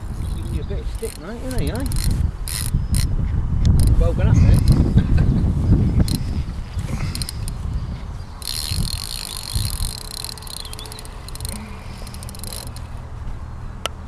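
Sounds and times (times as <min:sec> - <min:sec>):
fishing reel clicking rapidly: 0:00.0 - 0:04.9, 0:05.9 - 0:07.6, 0:08.4 - 0:13.0
low wind rumble: 0:00.0 - 0:14.0.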